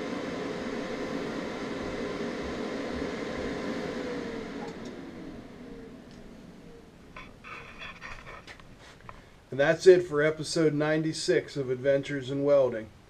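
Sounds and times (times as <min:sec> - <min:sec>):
welder cooling fan spinning down: 0:00.0 - 0:08.7.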